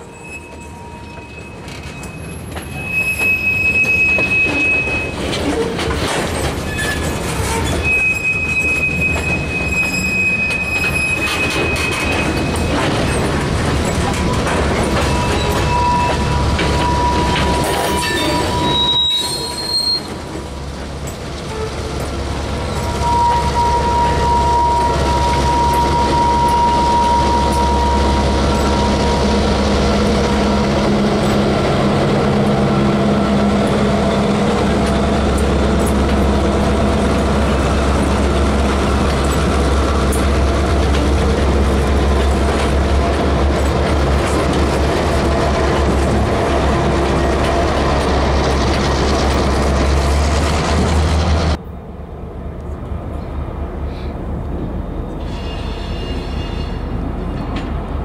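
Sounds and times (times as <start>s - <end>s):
steel wheel squeal: 0.0s - 5.9s, 6.5s - 13.3s, 13.9s - 20.2s, 22.6s - 30.5s, 55.2s - 57.0s
diesel locomotive engines droning: 0.0s - 58.0s
train clatter: 0.5s - 51.6s.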